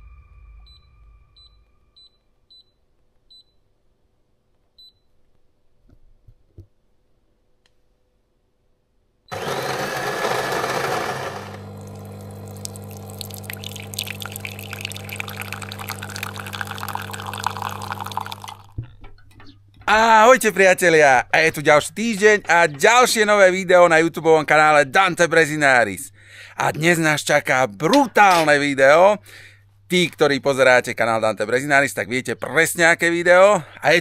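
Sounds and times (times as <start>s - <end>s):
coffee grinder grinding: 9.3s - 18.8s
coffee machine pump humming: 9.3s - 18.9s.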